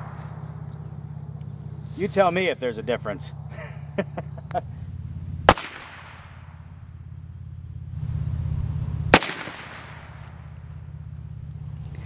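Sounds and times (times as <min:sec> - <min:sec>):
gunshots with echo: 0:00.0 - 0:01.0, 0:05.5 - 0:06.5, 0:09.1 - 0:10.3
low steady hum: 0:00.0 - 0:12.0.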